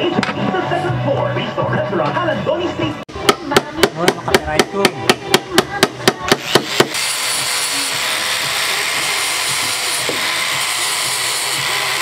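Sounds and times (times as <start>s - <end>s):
angle grinder sanding plywood: 5.8s - 12.0s.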